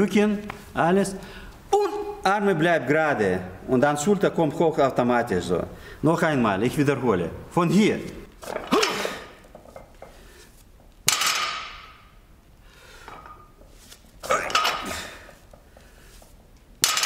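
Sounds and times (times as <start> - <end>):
barbell clanking: 8.4 - 10.2, 11.0 - 12.2, 14.2 - 15.4, 16.8 - 17.0
weight plates ringing: 11.1 - 12.2.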